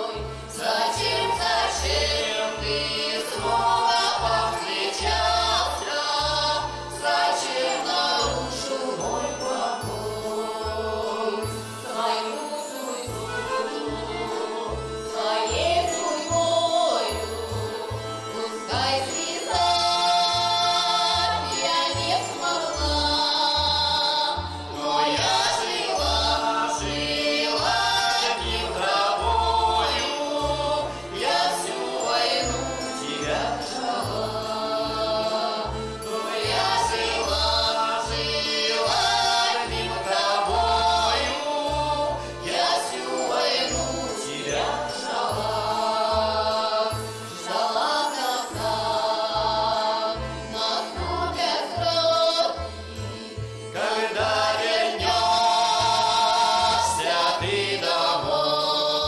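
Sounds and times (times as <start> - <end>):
accordion bass notes pulsing: 0.0 - 7.4, 13.1 - 59.0
woman and man singing: 0.0 - 35.5
button accordion: 0.0 - 59.0.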